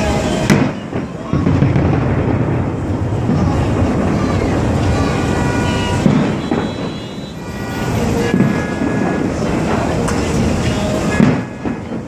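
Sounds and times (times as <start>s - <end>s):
fireworks shell bursts rumbling: 0.4s - 12.0s.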